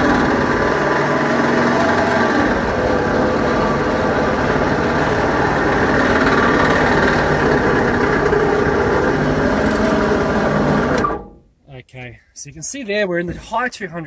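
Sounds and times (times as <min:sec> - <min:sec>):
electric winch motor droning: 0:00.0 - 0:11.2.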